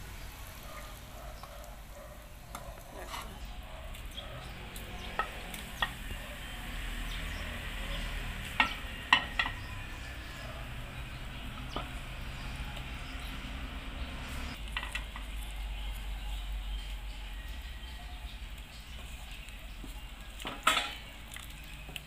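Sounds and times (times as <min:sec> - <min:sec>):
broth boiling and bubbling: 0:04.5 - 0:22.0
wooden spatula knocking on pot: 0:08.6 - 0:09.7.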